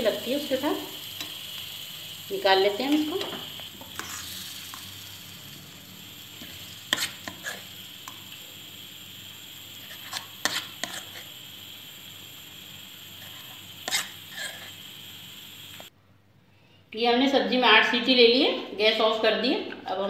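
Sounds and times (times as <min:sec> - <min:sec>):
steady background hiss: 0:00.0 - 0:20.0
metal spoon scraping a pan: 0:02.9 - 0:05.0, 0:06.3 - 0:08.3, 0:09.8 - 0:11.4, 0:13.2 - 0:14.8.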